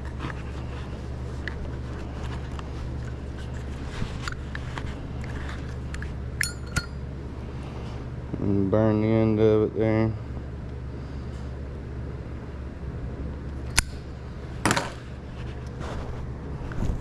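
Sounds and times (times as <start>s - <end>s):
hands handling rope and parts: 0.0s - 7.0s
steady low hum: 0.0s - 17.0s
sharp metallic clinks: 6.4s - 7.0s.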